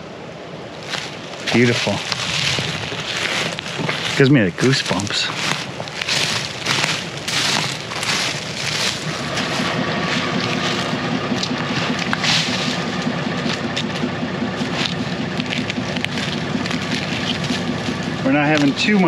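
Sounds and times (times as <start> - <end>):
wind hiss: 0.0 - 13.7
branches snapping and scraping: 0.8 - 19.0
vehicle engine idling: 0.8 - 19.0.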